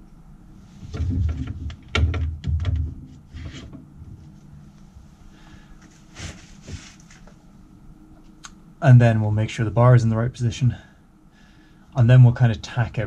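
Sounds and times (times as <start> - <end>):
short rustle: 3.5 - 7.5.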